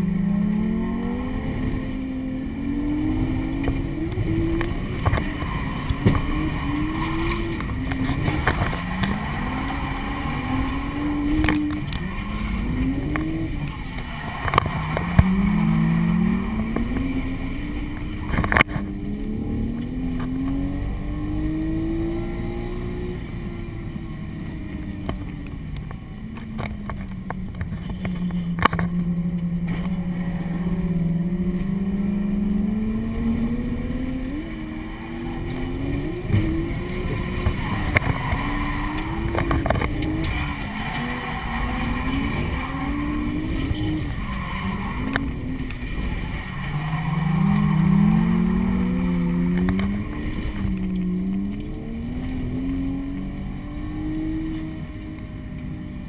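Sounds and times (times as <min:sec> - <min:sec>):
car engine revving: 0:00.0 - 0:56.0.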